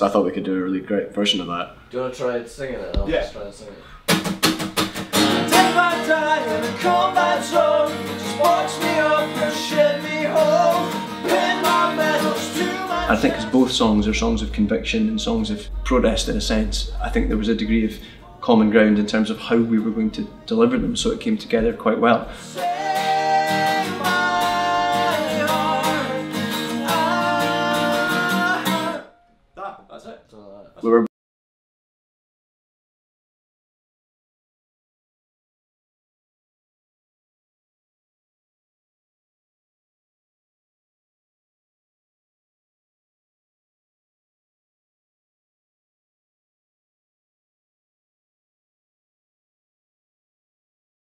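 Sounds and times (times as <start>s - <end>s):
acoustic guitar strumming: 4.1s - 29.3s
person singing: 5.2s - 21.2s, 22.3s - 29.2s.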